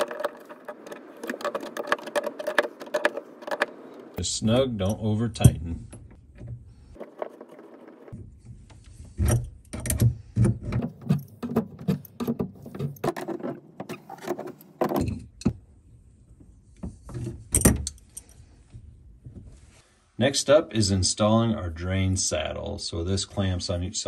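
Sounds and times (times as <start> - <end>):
sharp metallic clicks and knocks: 0.0 - 4.2.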